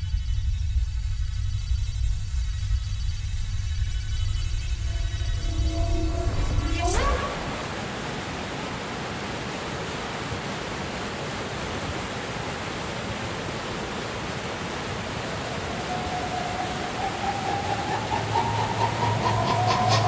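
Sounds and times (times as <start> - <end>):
held rising tone: 0.0 - 8.2, 15.3 - 20.0
low hum: 0.0 - 8.2, 15.3 - 20.0
steady rushing noise: 0.0 - 20.0.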